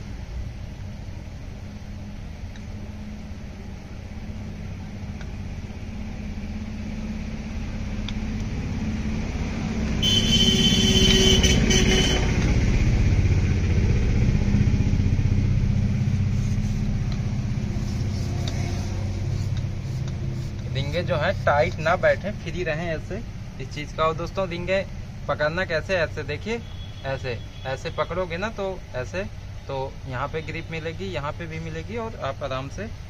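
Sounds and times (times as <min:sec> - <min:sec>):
vehicle engine running: 0:00.4 - 0:25.3.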